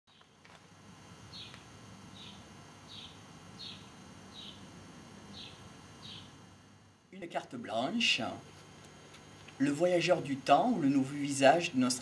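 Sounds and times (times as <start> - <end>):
bird calling: 1.3 - 4.6, 5.3 - 6.4.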